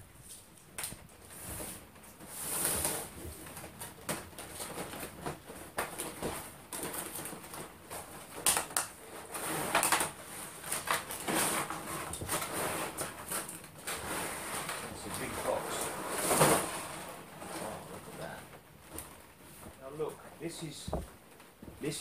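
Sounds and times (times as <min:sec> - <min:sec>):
cardboard box rustling and scraping: 0:01.3 - 0:08.1, 0:09.1 - 0:18.4.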